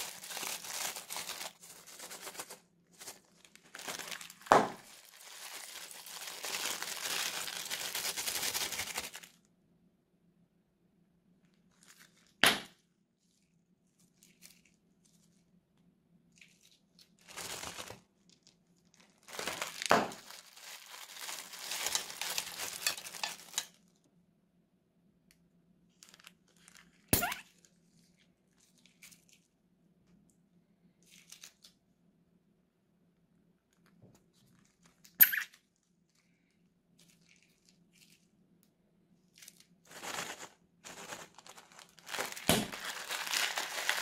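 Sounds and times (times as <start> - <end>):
plastic bags crinkling: 0.0 - 9.4, 11.7 - 12.4, 13.2 - 15.4, 16.3 - 23.9, 25.9 - 29.5, 37.0 - 38.3, 39.3 - 44.0.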